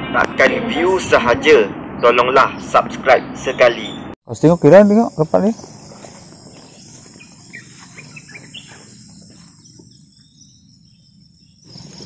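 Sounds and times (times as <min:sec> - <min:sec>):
low rumble of wind: 0:00.0 - 0:12.0
insects trilling: 0:04.3 - 0:12.0.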